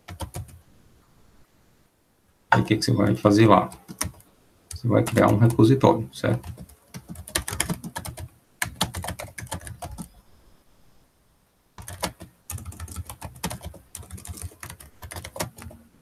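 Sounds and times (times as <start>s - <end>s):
typing on keyboard: 0.0s - 0.6s, 3.6s - 5.6s, 6.3s - 10.1s, 11.8s - 15.8s.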